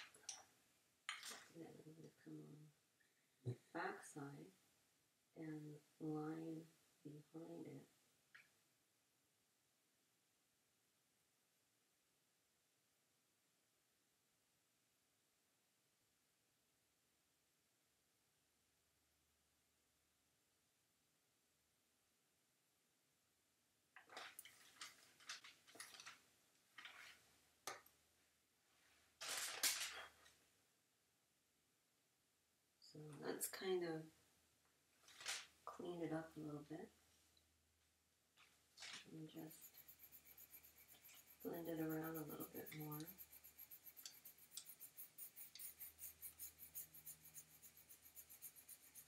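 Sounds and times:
pencil scratching on paper: 0:39.3 - 0:49.0.

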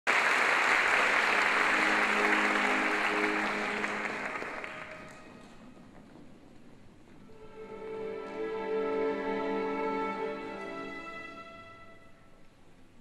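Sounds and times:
audience applause: 0:00.0 - 0:05.6
soft music: 0:01.0 - 0:13.0.

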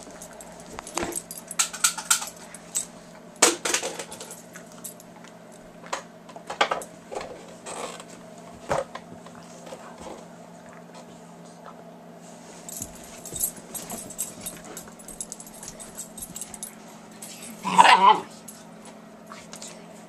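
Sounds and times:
dogs scuffling clicks and rattles: 0:00.0 - 0:05.0, 0:12.6 - 0:17.9.

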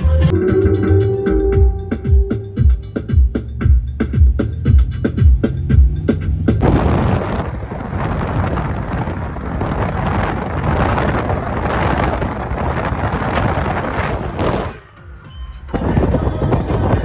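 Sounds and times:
road noise: 0:00.0 - 0:17.0
wind buffeting microphone: 0:06.2 - 0:17.0.

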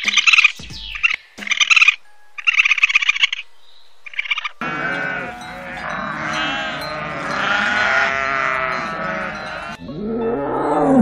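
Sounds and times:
goats bleating: 0:04.6 - 0:10.0.

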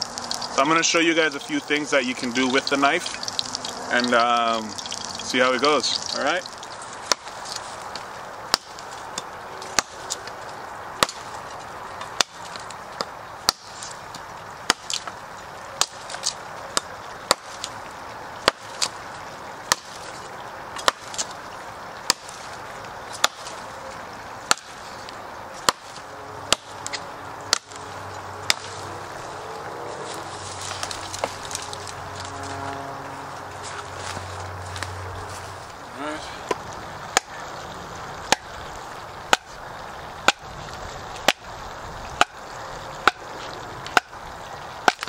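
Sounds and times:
knife chopping into a log: 0:23.2 - 0:23.6.

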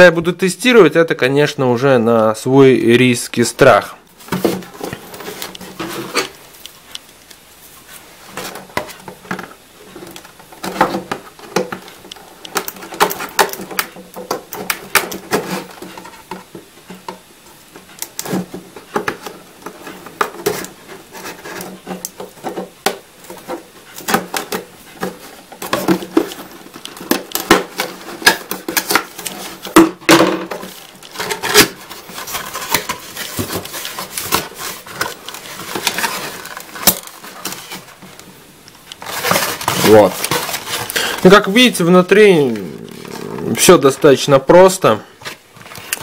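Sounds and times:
cardboard rustling: 0:03.0 - 0:46.0
scissors cutting cardboard: 0:30.6 - 0:37.9.

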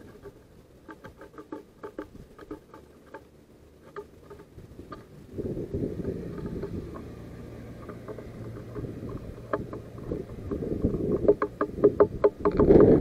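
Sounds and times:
bird pecking seeds on wood: 0:00.0 - 0:13.0
wind buffeting microphone: 0:04.5 - 0:13.0.

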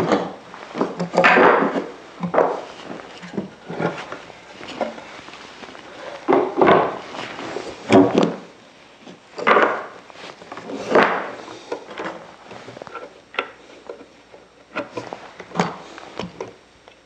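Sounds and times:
wooden pieces knocking on workbench: 0:00.0 - 0:02.6, 0:06.2 - 0:07.0, 0:09.4 - 0:09.9.

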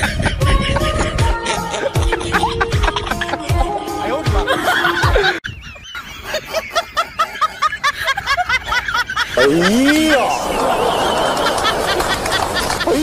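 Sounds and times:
high-pitched giggling: 0:00.0 - 0:03.7.

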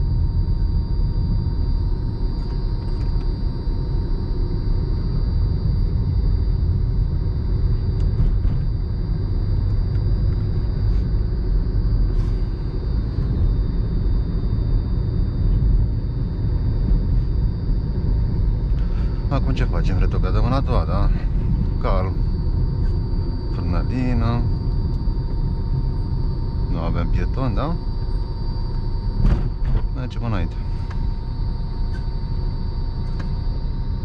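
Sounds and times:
car engine and tyre rumble: 0:00.0 - 0:19.7.

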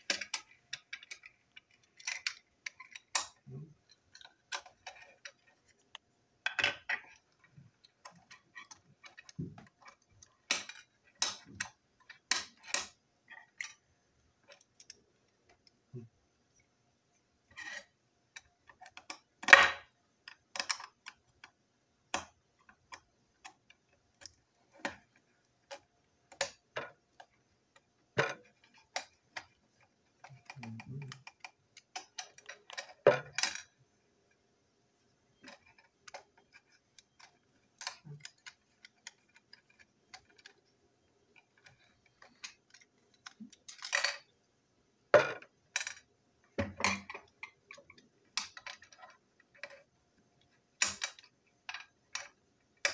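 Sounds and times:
small parts knocking on desk: 0:04.1 - 0:13.0, 0:45.2 - 0:49.8.

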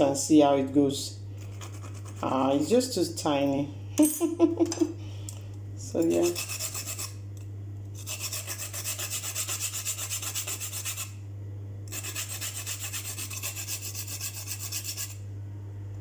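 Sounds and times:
steady low hum: 0:00.0 - 0:16.0
nutmeg rasping on grater: 0:06.1 - 0:07.2, 0:08.0 - 0:11.2, 0:11.9 - 0:15.2.

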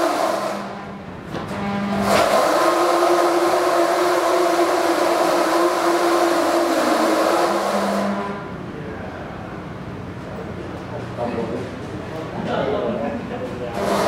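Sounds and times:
electric motors whining: 0:00.0 - 0:08.6.

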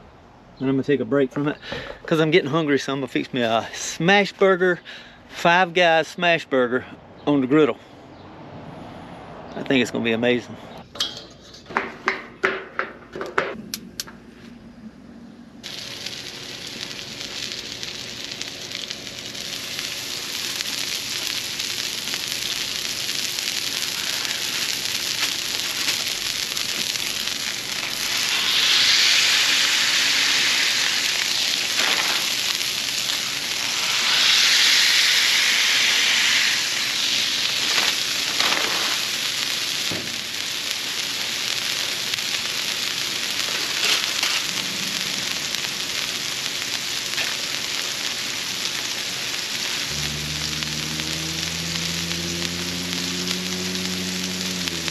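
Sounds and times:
meat sizzling on a griddle: 0:15.6 - 0:54.9.

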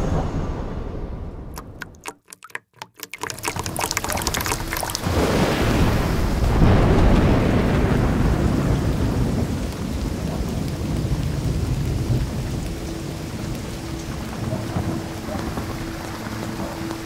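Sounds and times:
heavy rain: 0:04.9 - 0:17.0
thunder rumbling: 0:05.0 - 0:17.0.

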